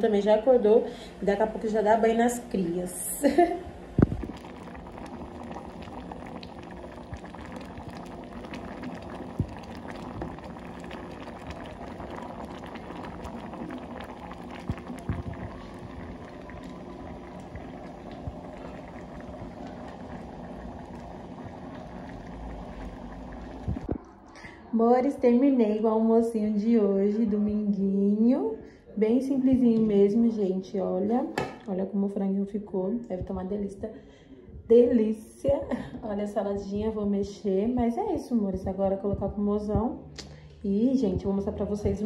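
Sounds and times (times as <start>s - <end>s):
pot bubbling at a boil: 0.0s - 24.2s, 35.5s - 42.0s.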